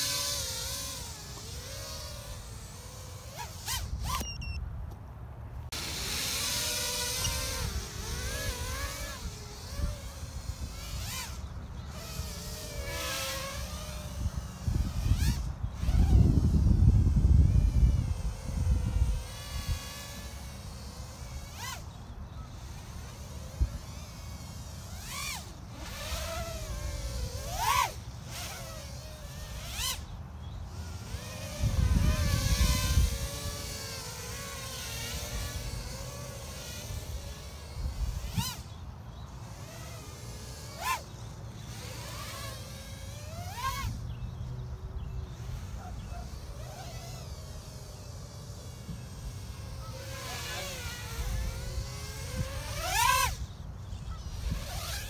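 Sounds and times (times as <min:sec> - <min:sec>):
quadcopter motors whining: 0:00.0 - 0:55.0.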